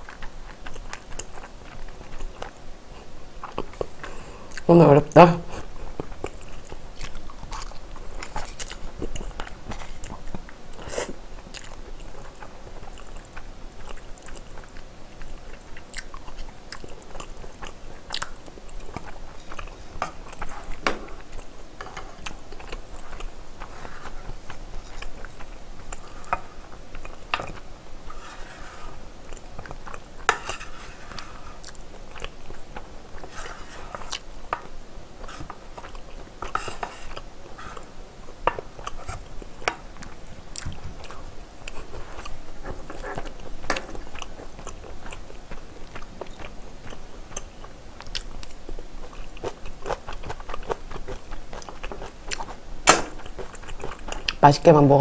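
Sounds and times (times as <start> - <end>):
chewing spaghetti: 0.0 - 4.8, 5.5 - 54.7.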